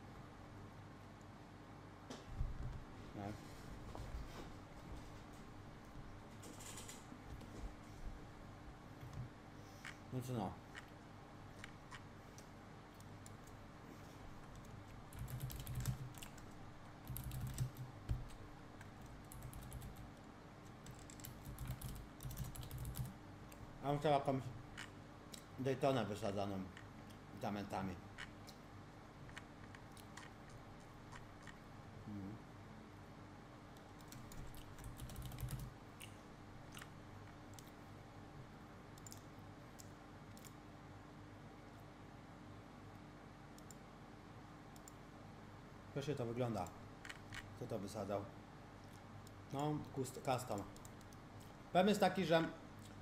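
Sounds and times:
faint steady hum: 0.0 - 53.0
computer keyboard typing: 14.5 - 23.2, 34.0 - 35.7, 39.0 - 39.2.

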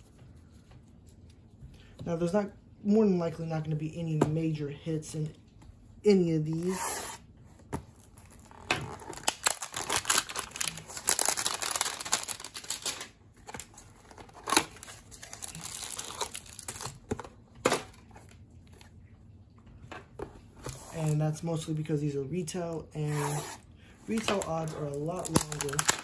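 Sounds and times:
packaging crinkling: 7.9 - 18.9, 24.0 - 26.0.

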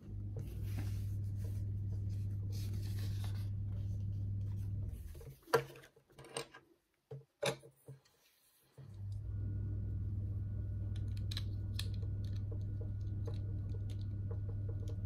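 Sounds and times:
steady low hum: 0.0 - 5.4, 8.8 - 15.0
paper pages rustling: 0.4 - 5.8.

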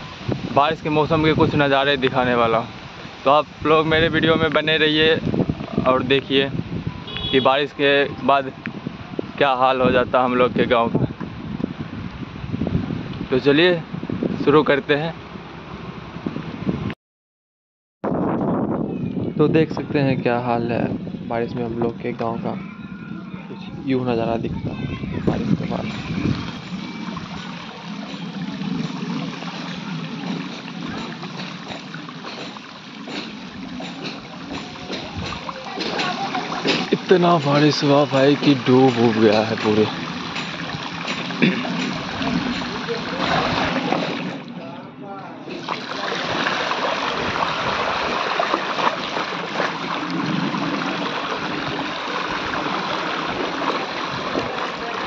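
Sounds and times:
wading through water sloshing: 25.3 - 44.6, 45.5 - 55.0.

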